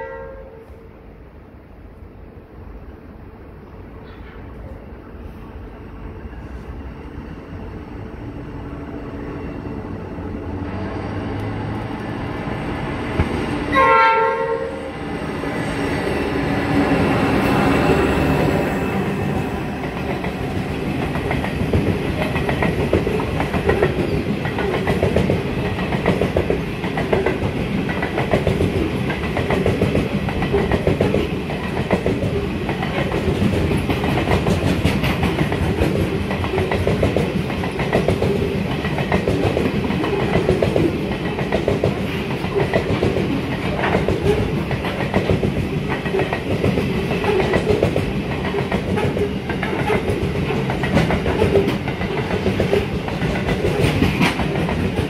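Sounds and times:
train horn blast: 0:00.0 - 0:00.9, 0:13.7 - 0:14.9
train wheels clickety-clack: 0:10.7 - 0:13.7, 0:15.4 - 0:55.0.

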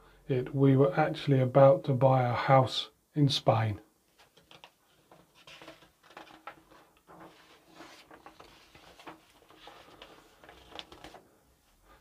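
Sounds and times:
soft rustles: 0:04.1 - 0:12.0.

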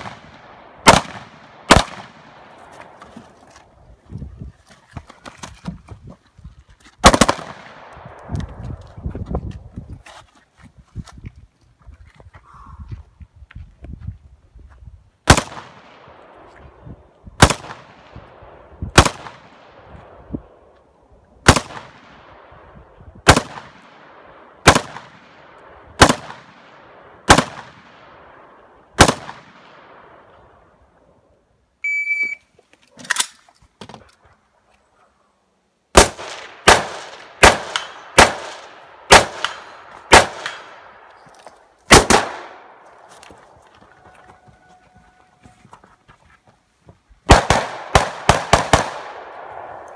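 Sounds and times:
rifle shots echoing: 0:00.0 - 0:02.7, 0:07.0 - 0:08.3, 0:15.3 - 0:16.5, 0:17.4 - 0:20.6, 0:21.4 - 0:30.4, 0:35.9 - 0:41.1, 0:41.9 - 0:42.8, 0:47.3 - 0:49.9.

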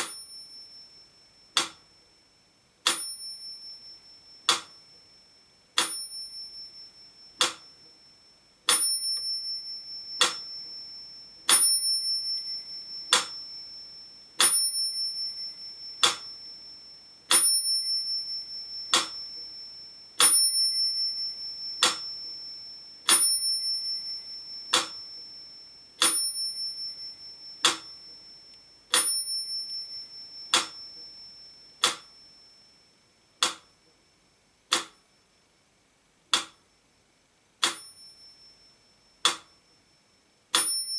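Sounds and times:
metronome ticking slowly: 0:00.0 - 0:02.0, 0:02.8 - 0:08.1, 0:08.7 - 0:32.6, 0:33.3 - 0:35.2, 0:36.3 - 0:36.8, 0:37.6 - 0:39.8, 0:40.5 - 0:40.9
metronome bell ringing: 0:00.0 - 0:02.2, 0:02.9 - 0:34.2, 0:37.7 - 0:40.9.

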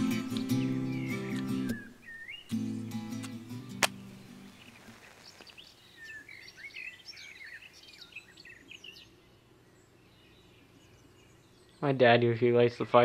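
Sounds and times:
songbirds chirping: 0:00.0 - 0:13.0
match struck on matchbox: 0:03.1 - 0:05.6.

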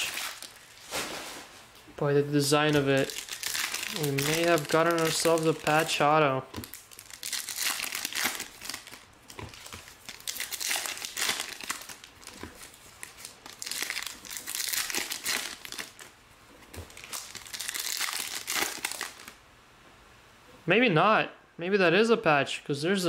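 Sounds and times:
foil wrappers tearing and crinkling: 0:00.0 - 0:01.5, 0:02.4 - 0:16.1, 0:16.7 - 0:19.4.

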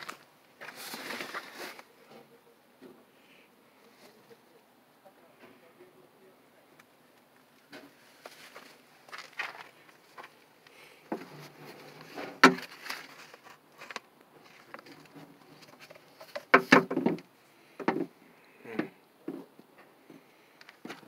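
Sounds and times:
hands rustling: 0:08.0 - 0:16.5.

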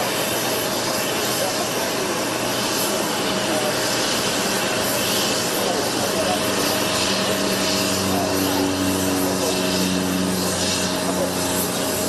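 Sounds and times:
constant engine whine: 0:00.0 - 0:12.0
jet engines roaring: 0:00.0 - 0:12.0.

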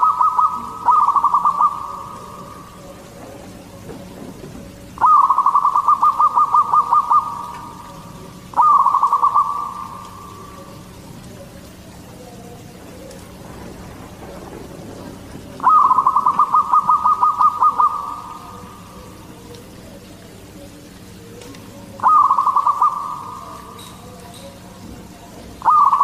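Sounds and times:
dove cooing: 0:00.0 - 0:26.0.

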